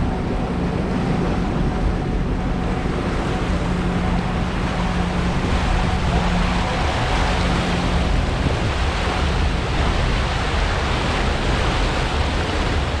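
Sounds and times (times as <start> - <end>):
boat engine droning: 0.0 - 13.0
water rushing in wake: 0.0 - 13.0
wind across microphone: 0.0 - 13.0.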